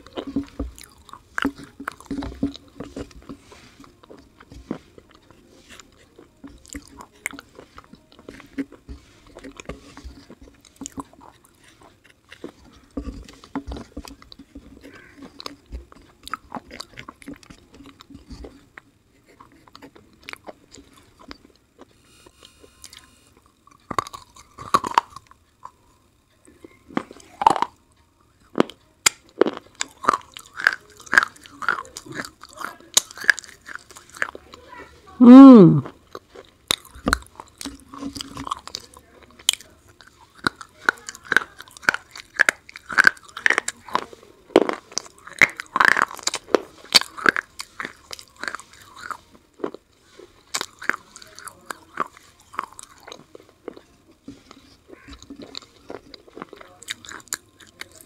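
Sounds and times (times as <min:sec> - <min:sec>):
chewing and crunching: 0:00.0 - 0:35.2, 0:35.8 - 0:58.0
wooden sticks scraping paste: 0:00.2 - 0:16.1.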